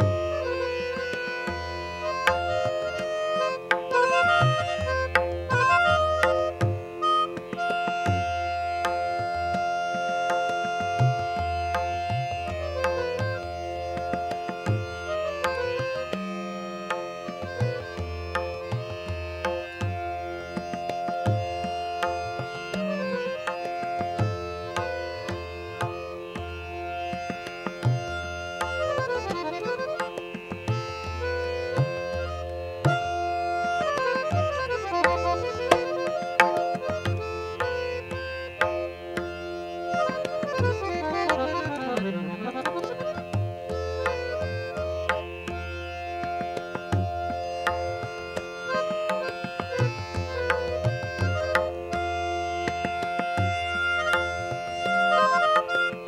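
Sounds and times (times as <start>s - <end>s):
harmonium playing: 0.0s - 56.0s
tabla strokes: 0.0s - 56.0s.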